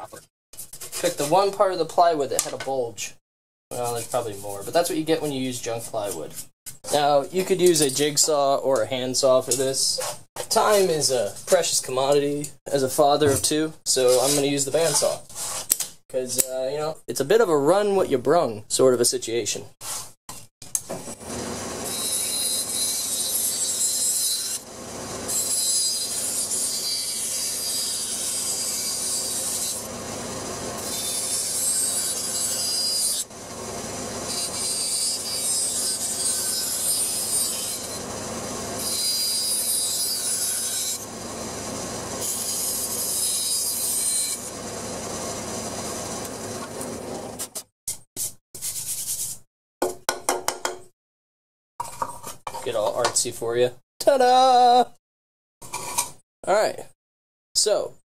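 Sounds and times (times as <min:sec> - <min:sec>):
bandsaw cutting plywood: 0:21.0 - 0:47.7.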